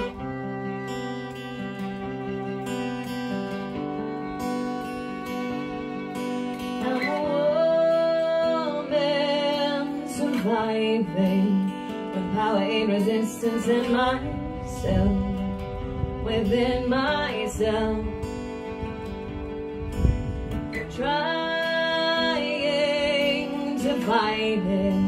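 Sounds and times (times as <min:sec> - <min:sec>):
acoustic guitar strumming: 0:00.0 - 0:25.0
violin melody: 0:00.0 - 0:25.0
woman singing: 0:06.7 - 0:18.6, 0:20.7 - 0:25.0.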